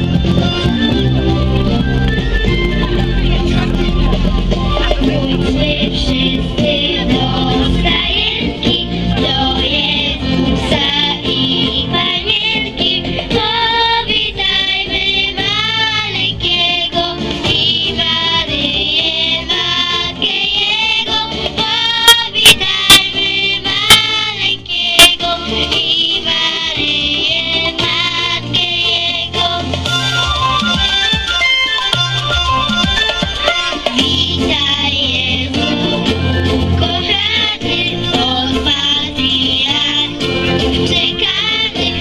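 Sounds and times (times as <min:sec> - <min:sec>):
instrumental accompaniment: 0:00.0 - 0:42.0
women and children singing carol: 0:04.9 - 0:29.8, 0:34.0 - 0:42.0.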